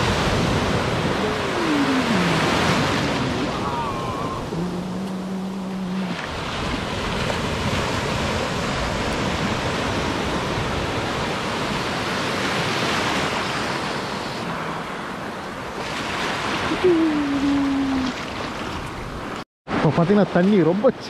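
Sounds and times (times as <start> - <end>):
surf breaking on beach: 0.0 - 20.8.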